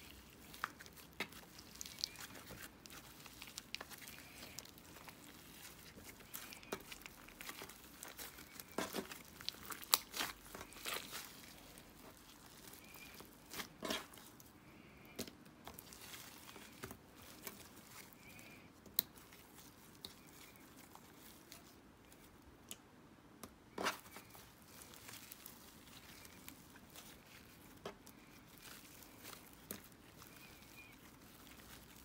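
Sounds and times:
slime crackling and popping: 0:00.0 - 0:14.5, 0:23.8 - 0:32.0.

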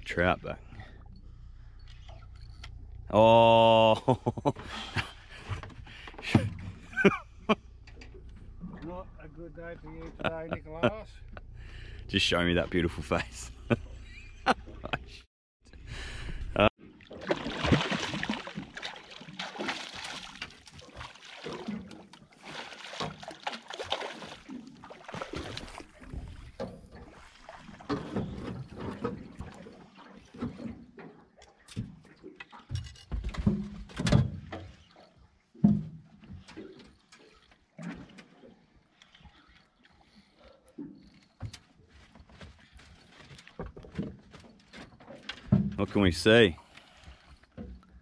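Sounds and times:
water splashing and trickling: 0:16.7 - 0:48.0.

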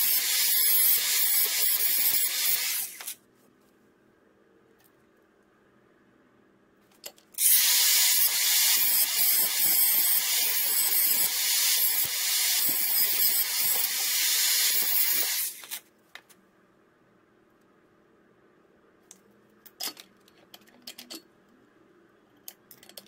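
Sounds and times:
angle grinder grinding metal: 0:07.4 - 0:15.6.

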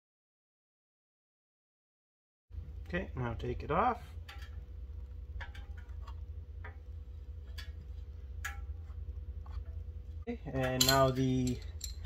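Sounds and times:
steady low hum: 0:02.5 - 0:12.0.

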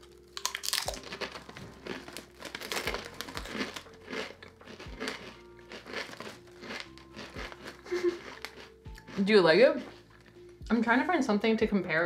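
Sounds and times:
foil chip bag crinkling: 0:00.0 - 0:09.2
chips crunching in mouth: 0:00.0 - 0:10.4
background music: 0:00.0 - 0:12.0.

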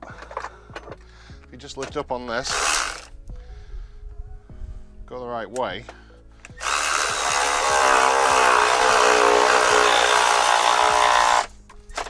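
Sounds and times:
electric ratchet running: 0:02.5 - 0:03.1, 0:06.6 - 0:11.5.

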